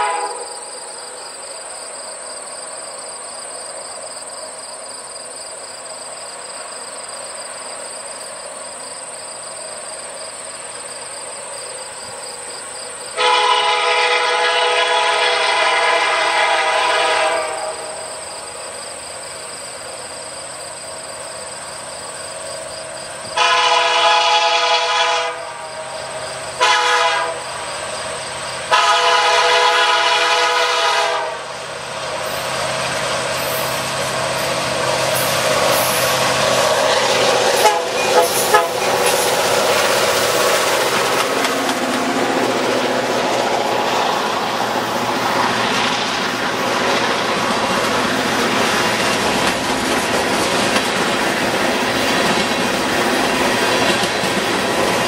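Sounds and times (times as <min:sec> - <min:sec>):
locomotive air horn blasts: 0:00.0 - 0:00.7, 0:13.2 - 0:18.0, 0:23.4 - 0:25.7, 0:26.6 - 0:27.5, 0:28.7 - 0:31.5, 0:37.6 - 0:39.2
locomotive running quietly: 0:00.0 - 0:55.0.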